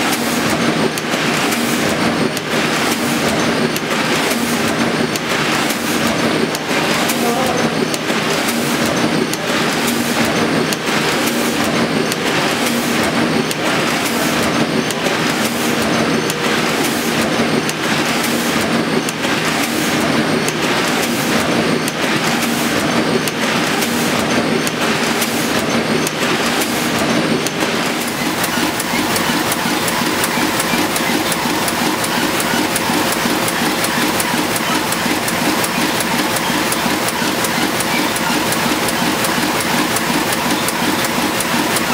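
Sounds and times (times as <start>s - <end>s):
printing press clattering: 0.0s - 41.9s
steady machine whine: 22.7s - 41.9s.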